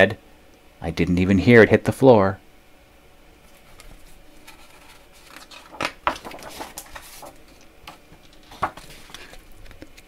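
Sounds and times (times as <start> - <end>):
book page rustling: 3.5 - 10.0
page and cover clicks: 3.8 - 10.0.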